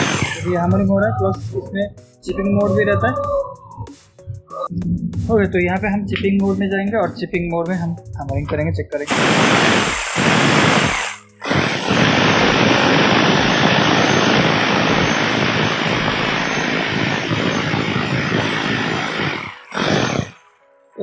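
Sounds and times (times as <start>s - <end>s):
rotary hammer drill hammering steel: 0.0s - 0.9s, 9.1s - 20.4s.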